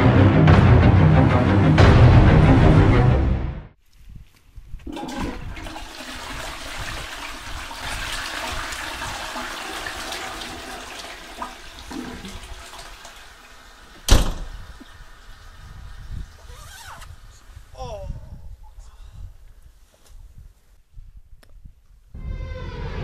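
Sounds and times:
toilet flushing: 4.9 - 14.1.

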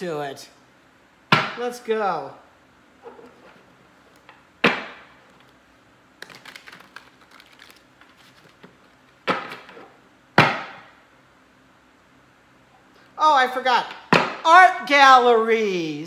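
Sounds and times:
cards shuffled in rush: 6.2 - 9.8.

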